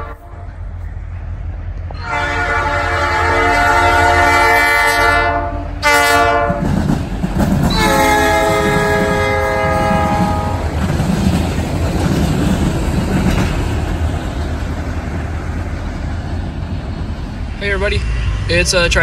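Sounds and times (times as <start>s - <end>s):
locomotive horn blasts: 0.0s - 0.5s, 2.0s - 6.6s, 7.7s - 10.7s
low rumble of passing train: 0.0s - 19.0s.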